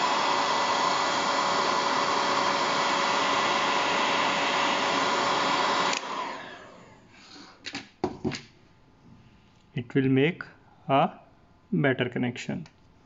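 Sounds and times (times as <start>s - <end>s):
heat gun whirring: 0.0s - 7.0s.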